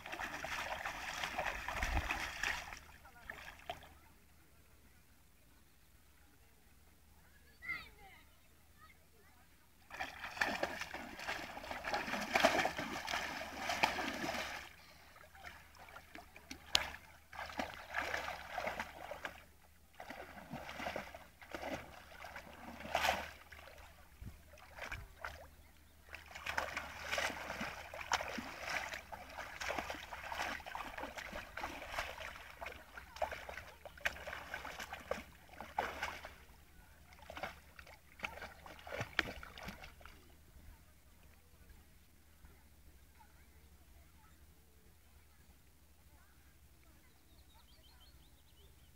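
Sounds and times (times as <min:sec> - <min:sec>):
water splashing and sloshing: 0:00.0 - 0:04.0, 0:09.8 - 0:41.4.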